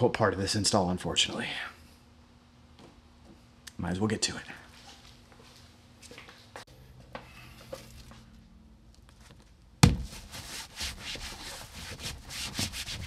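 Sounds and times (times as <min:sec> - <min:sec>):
hand rubbing fabric: 0:10.0 - 0:13.0.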